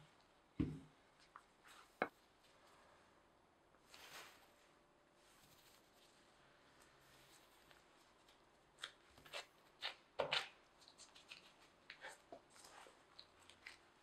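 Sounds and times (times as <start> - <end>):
plastic gloves crinkling: 3.8 - 14.0.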